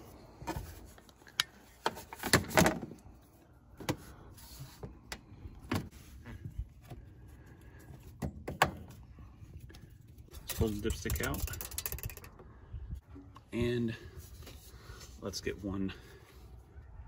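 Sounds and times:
plastic and metal clatter: 10.4 - 12.4.

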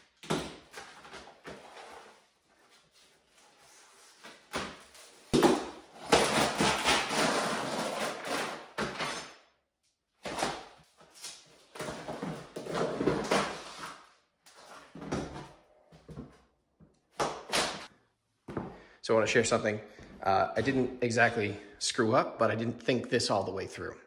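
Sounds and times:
scraping and cracking: 6.0 - 9.3.

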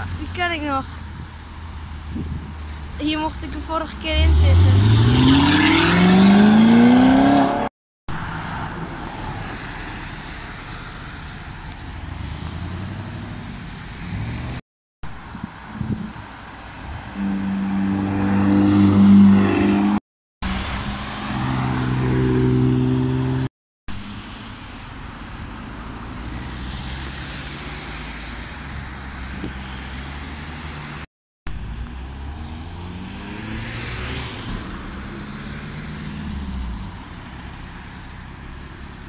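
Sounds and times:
sports cars driving past: 17.1 - 20.0, 20.6 - 23.5.

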